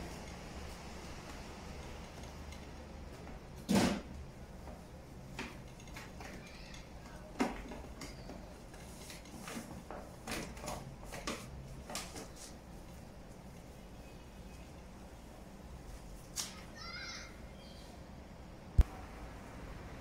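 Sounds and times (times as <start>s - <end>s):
cloth wiping appliances: 4.4s - 16.8s.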